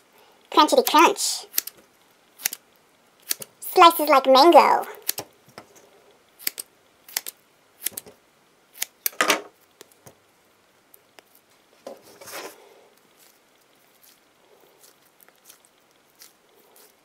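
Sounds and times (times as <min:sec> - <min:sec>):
scissors cutting rubber: 0:01.5 - 0:01.8, 0:02.4 - 0:02.6, 0:03.2 - 0:03.5, 0:05.0 - 0:05.2, 0:06.4 - 0:08.1, 0:08.7 - 0:09.1, 0:14.8 - 0:17.0
rustle of pieces handled: 0:11.0 - 0:17.0.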